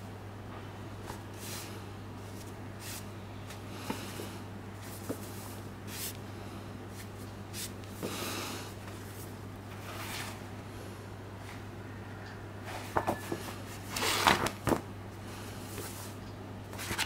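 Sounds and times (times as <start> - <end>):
steady low hum: 0.0 - 17.0
paper book rustling: 16.8 - 17.0.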